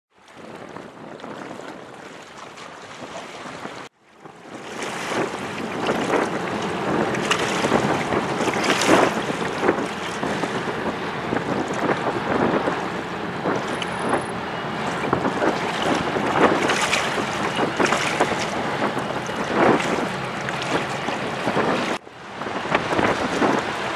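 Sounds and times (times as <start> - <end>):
wind buffeting microphone: 0.2 - 23.9.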